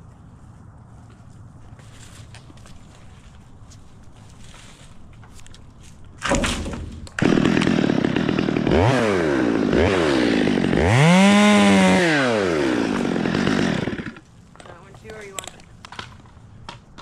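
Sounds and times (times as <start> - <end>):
chainsaw idling and revving: 7.2 - 14.2.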